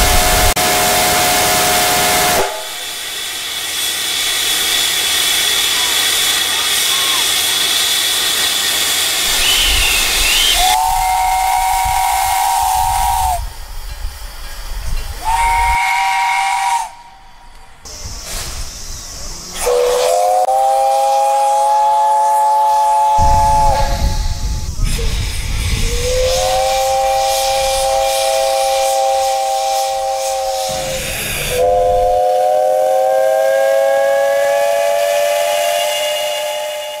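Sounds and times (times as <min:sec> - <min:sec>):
steam locomotive chime whistle: 0:00.0 - 0:18.7, 0:19.5 - 0:24.6, 0:25.4 - 0:37.0
steam hissing: 0:00.0 - 0:37.0
low rumble: 0:23.2 - 0:28.5.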